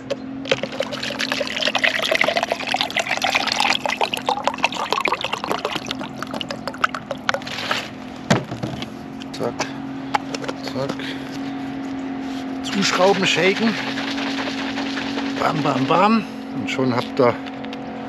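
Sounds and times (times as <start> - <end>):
water pouring into shaker: 0.5 - 7.6, 12.7 - 16.0.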